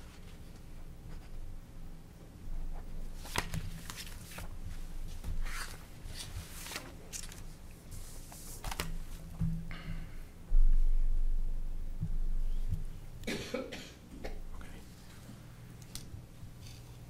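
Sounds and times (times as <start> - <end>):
papers shuffling and rustling: 2.7 - 9.6.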